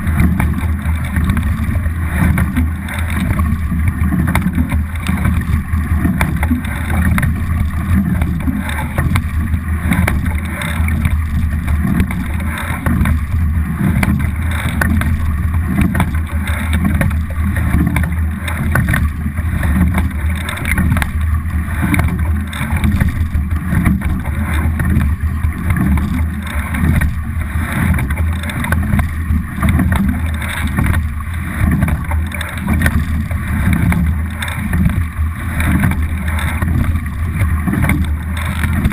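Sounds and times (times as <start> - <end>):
heavy low rumble: 0.0 - 38.9
water rushing: 0.0 - 38.9.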